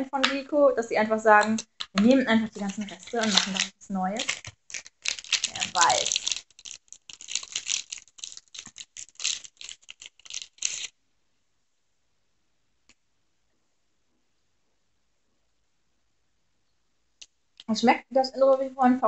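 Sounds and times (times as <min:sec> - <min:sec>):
snack packaging crinkling: 0:01.4 - 0:11.0.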